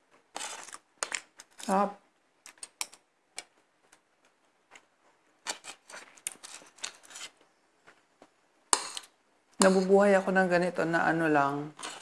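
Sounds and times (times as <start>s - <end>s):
cutlery scraping ceramic plate: 5.5s - 7.4s, 8.8s - 9.8s, 11.8s - 12.0s.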